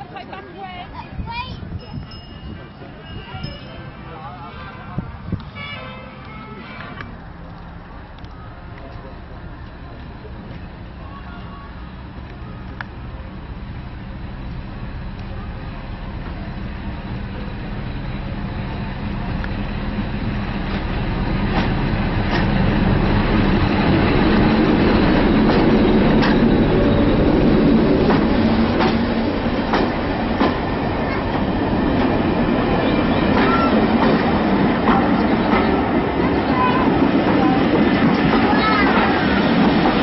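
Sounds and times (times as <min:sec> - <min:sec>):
diesel locomotive passing: 0:00.0 - 0:40.0
train wheels clicking over rail joints: 0:18.6 - 0:40.0.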